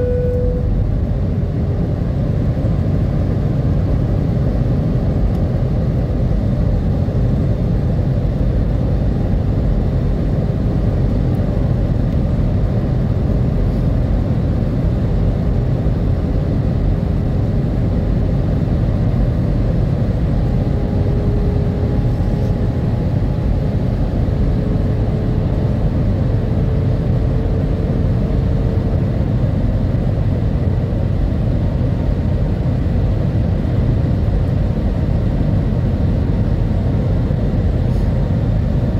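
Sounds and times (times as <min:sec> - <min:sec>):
faint hum: 0:00.0 - 0:04.2, 0:08.2 - 0:38.9
jet engines roaring in cabin: 0:00.0 - 0:38.9.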